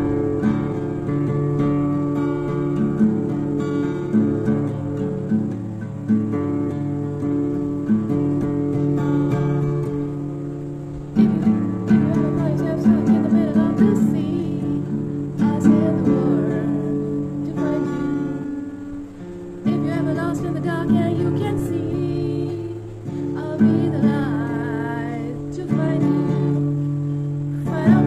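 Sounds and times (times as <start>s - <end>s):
acoustic guitar strumming: 0.0s - 28.0s
woman singing: 11.1s - 19.0s, 19.6s - 28.0s.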